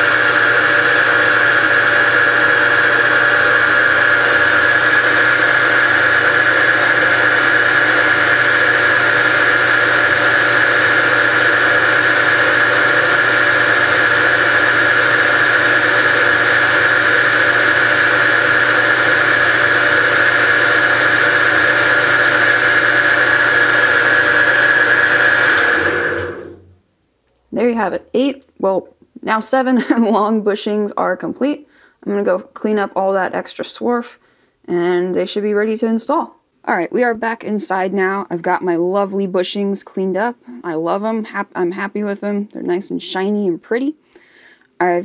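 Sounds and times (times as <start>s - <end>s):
lathe whining: 0.0s - 26.7s.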